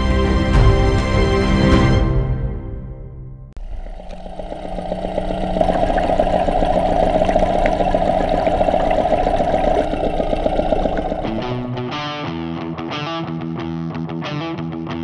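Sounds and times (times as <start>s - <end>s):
outboard motor underwater hum: 3.6s - 11.8s.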